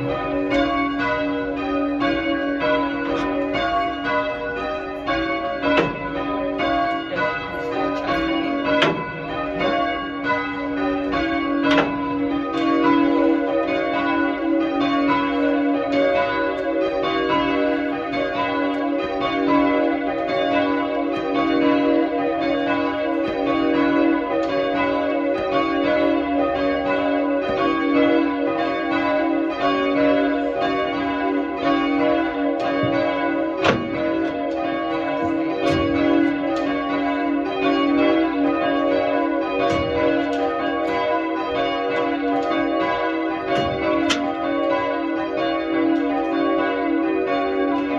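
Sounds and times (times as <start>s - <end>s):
church bells ringing: 0.0s - 47.9s
sharp knocks: 5.6s - 6.1s, 8.7s - 9.8s, 11.6s - 12.0s, 32.6s - 34.4s, 43.5s - 44.3s.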